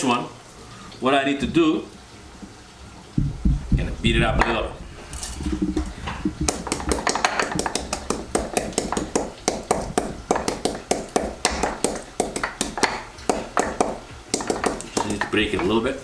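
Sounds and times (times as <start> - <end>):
rapid pounding: 3.2 - 4.6, 5.4 - 15.6.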